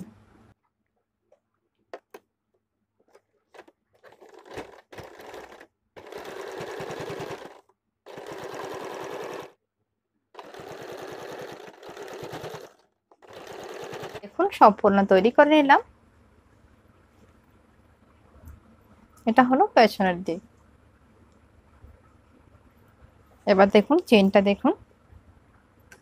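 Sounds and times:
sewing machine stitching: 3.1s - 9.6s, 10.4s - 14.3s.

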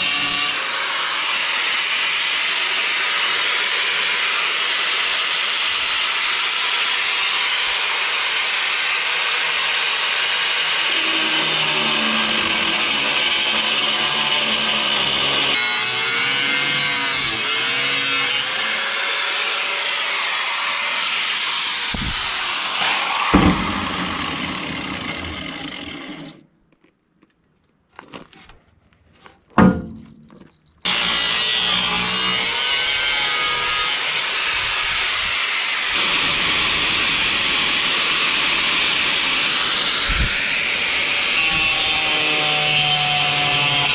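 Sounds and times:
angle grinder cutting steel: 0.0s - 26.4s, 30.8s - 43.9s
loud metal clank: 22.0s - 25.4s, 29.6s - 30.4s
sharp metal knocks: 22.8s - 24.6s, 29.6s - 30.5s.

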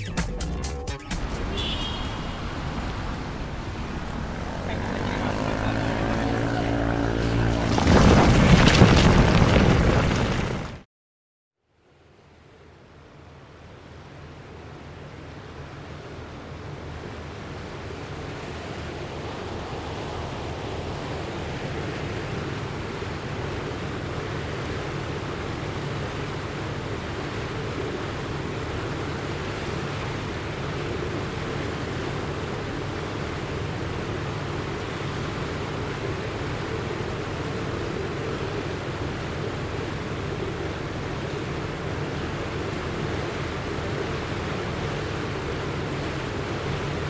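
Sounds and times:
rushing surging water: 1.2s - 10.7s, 14.3s - 47.0s.

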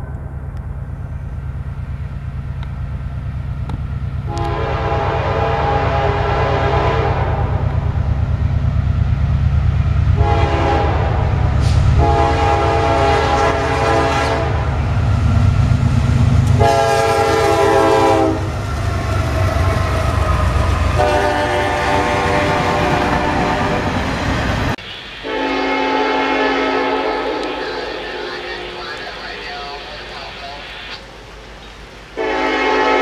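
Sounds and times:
low rumble of train: 0.0s - 33.0s
locomotive air horn blasts: 4.3s - 7.8s, 10.2s - 14.7s, 16.6s - 18.5s, 20.9s - 23.9s, 25.2s - 29.1s, 32.2s - 33.0s.

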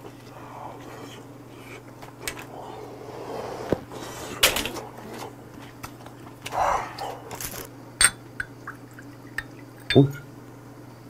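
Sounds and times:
mouth sounds of eating: 0.0s - 7.7s
steady low hum: 0.0s - 11.0s.

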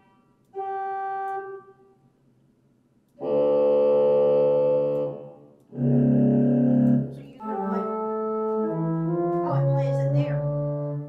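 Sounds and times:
pipe organ notes through speakers: 0.0s - 1.9s, 3.2s - 11.0s.

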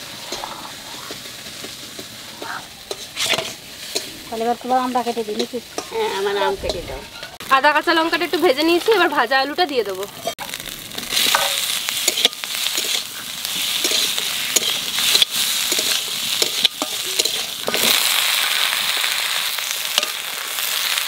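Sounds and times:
spatula scraping a pan: 0.0s - 7.4s, 10.1s - 18.9s
food sizzling in hot oil: 0.0s - 21.0s
spatula clicking on pan: 11.3s - 13.1s, 13.8s - 17.9s.

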